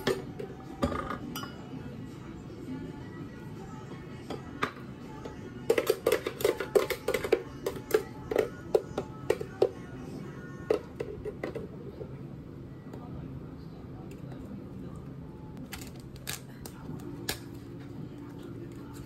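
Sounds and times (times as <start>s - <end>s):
drink making clatter: 5.6s - 9.9s.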